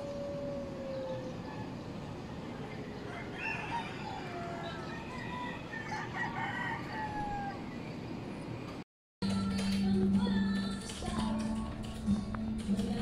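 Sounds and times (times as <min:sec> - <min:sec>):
low city hum: 0:00.0 - 0:13.0
rooster crowing: 0:02.9 - 0:07.8.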